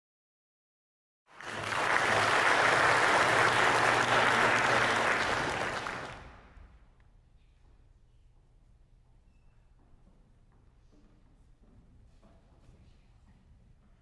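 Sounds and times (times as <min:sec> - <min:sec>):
audience applauding: 0:01.3 - 0:06.5.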